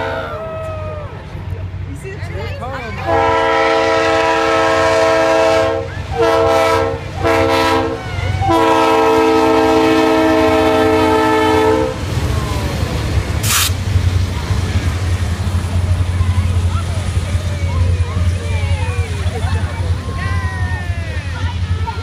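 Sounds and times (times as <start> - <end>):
locomotive air horn blasts: 0.0 - 0.4, 3.0 - 12.0
passing locomotives rumbling: 0.0 - 22.0
brief air hiss: 13.4 - 13.8.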